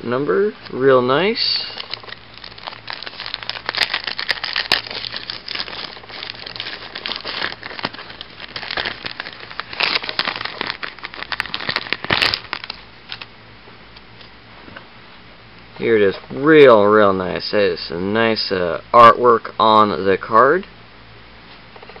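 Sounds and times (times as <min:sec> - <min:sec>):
plastic packaging crinkling: 0:01.2 - 0:13.3.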